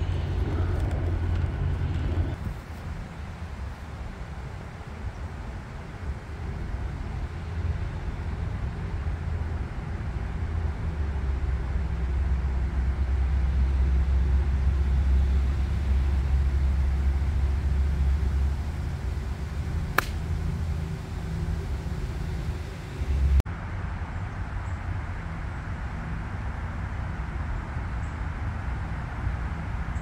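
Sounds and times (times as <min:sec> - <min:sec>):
wind rumble on microphone: 0:00.0 - 0:30.0
golf club striking ball: 0:19.9 - 0:20.4.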